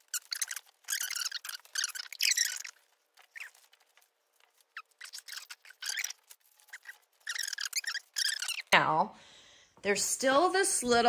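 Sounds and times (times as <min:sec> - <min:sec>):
ribbon and greenery crinkling: 0:00.0 - 0:08.8.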